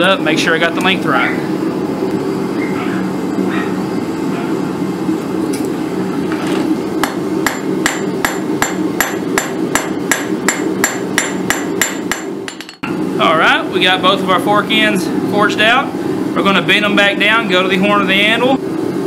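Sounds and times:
hammer striking hot metal on anvil: 0:07.0 - 0:12.9.

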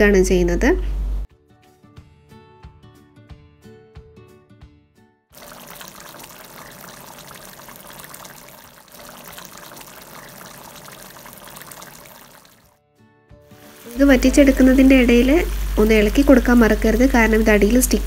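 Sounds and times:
gravy bubbling and sizzling: 0:05.4 - 0:12.7, 0:13.5 - 0:18.0.

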